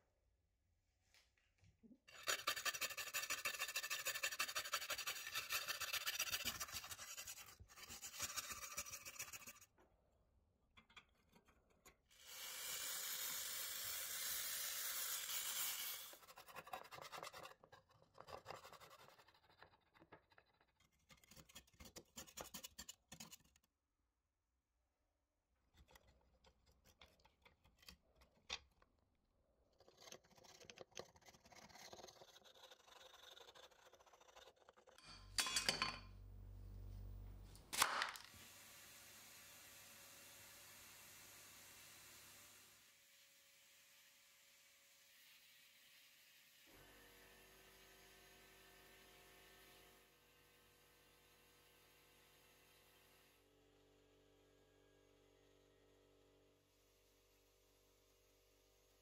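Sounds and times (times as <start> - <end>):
aerosol can hissing: 12.2 - 16.2.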